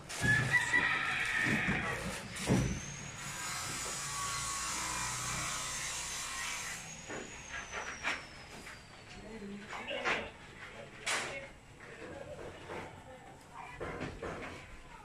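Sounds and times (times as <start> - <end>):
steady mechanical noise: 0.0 - 10.4.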